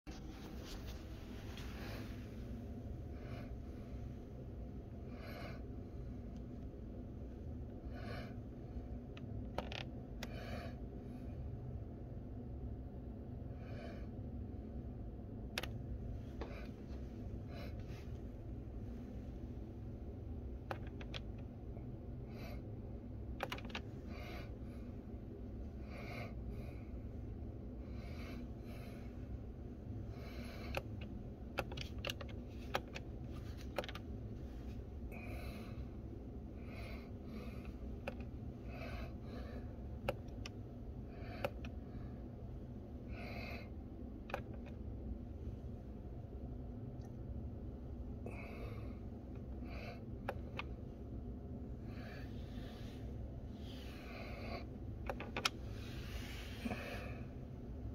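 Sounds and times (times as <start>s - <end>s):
low steady hum: 0.1s - 57.9s
breathing close to microphone: 51.8s - 54.8s, 55.6s - 57.4s.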